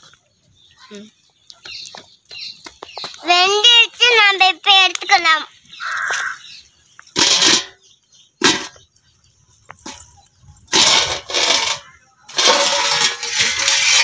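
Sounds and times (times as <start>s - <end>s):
steel lid scraping on pot rim: 10.8s - 14.0s.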